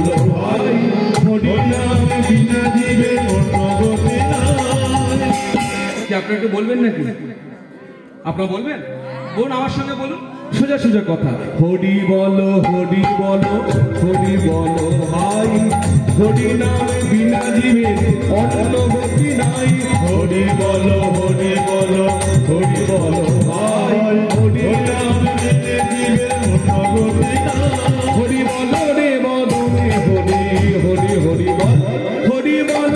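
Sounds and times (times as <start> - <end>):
man singing into a microphone: 0.0 - 7.0, 9.3 - 32.9
rattling percussion: 1.1 - 6.4, 12.6 - 32.9
hand drum: 1.2 - 6.0, 13.0 - 31.9.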